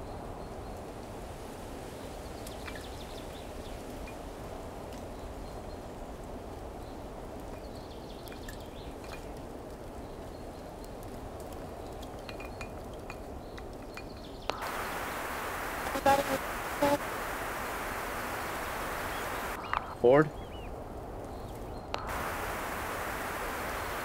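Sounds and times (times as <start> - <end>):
low outdoor rumble: 4.4 - 24.0
walkie-talkie static hiss: 14.5 - 20.3, 22.0 - 24.0
faint clicks: 21.2 - 23.8.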